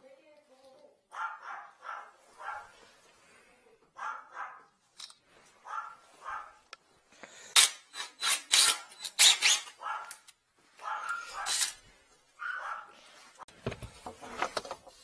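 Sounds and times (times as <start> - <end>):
dog barking: 1.1 - 2.8, 4.0 - 4.8, 5.6 - 6.7, 9.8 - 10.2, 10.8 - 11.6, 12.4 - 13.1.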